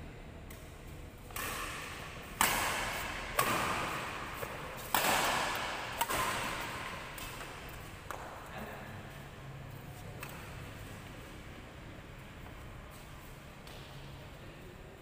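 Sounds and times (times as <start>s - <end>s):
badminton racket hitting shuttlecock: 0.5s - 8.4s.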